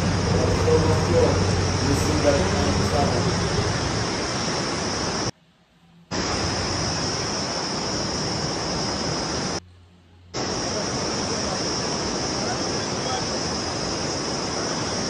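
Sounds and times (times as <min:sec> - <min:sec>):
floodwater torrent rushing: 0:00.0 - 0:05.3, 0:06.1 - 0:09.6, 0:10.3 - 0:15.0.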